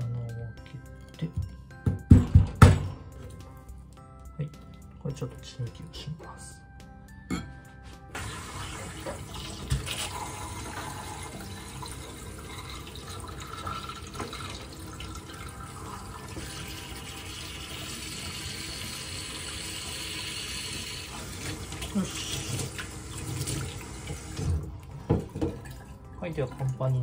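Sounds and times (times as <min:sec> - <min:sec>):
tap water splashing into sink: 0:08.2 - 0:11.6, 0:12.6 - 0:15.3, 0:21.1 - 0:26.8.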